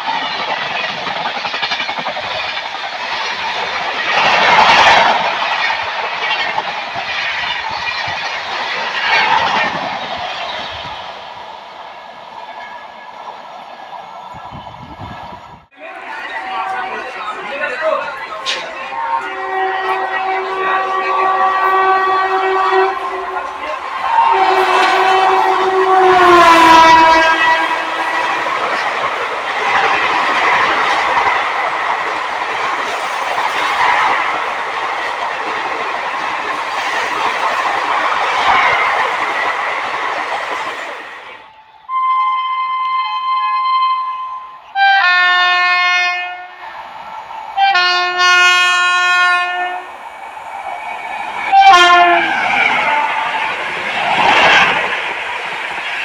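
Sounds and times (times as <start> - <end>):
train coaches rushing and rattling: 0.0 - 41.8, 44.7 - 56.0
train horn blasts: 15.8 - 17.4, 18.5 - 28.4, 41.5 - 46.6, 47.6 - 49.9, 51.5 - 53.4.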